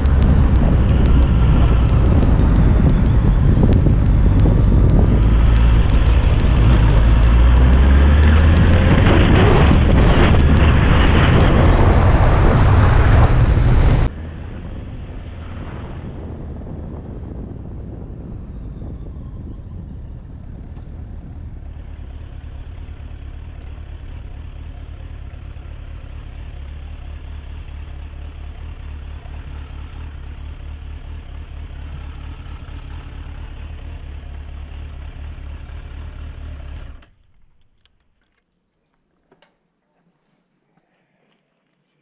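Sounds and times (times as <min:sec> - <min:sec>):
motorcycle engine idling: 0:00.0 - 0:14.1, 0:19.9 - 0:37.6.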